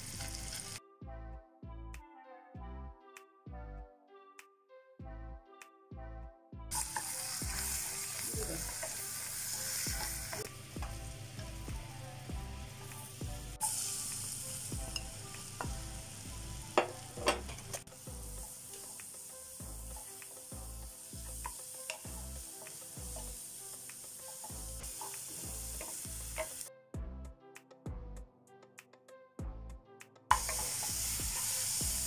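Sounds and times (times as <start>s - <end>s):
onions sizzling in oil: 0.0s - 0.8s, 6.7s - 26.7s, 30.3s - 32.0s
background music beat: 0.0s - 32.0s.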